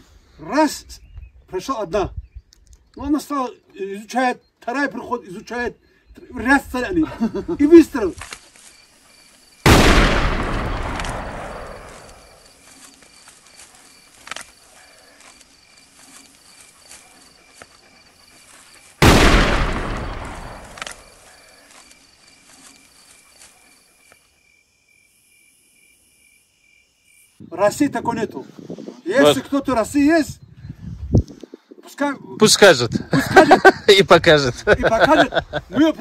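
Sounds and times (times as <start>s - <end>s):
rumbling echo: 9.7s - 12.2s, 19.0s - 20.8s
rifle shots: 9.7s - 12.4s, 19.0s - 21.2s.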